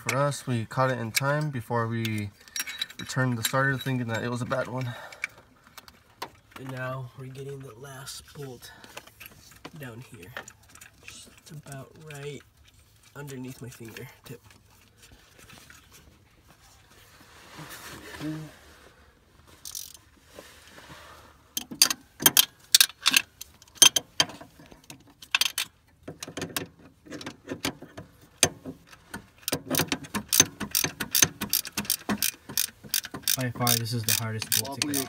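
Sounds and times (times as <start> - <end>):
ratchet wrench clicking: 19.6 - 20.0, 29.4 - 35.0.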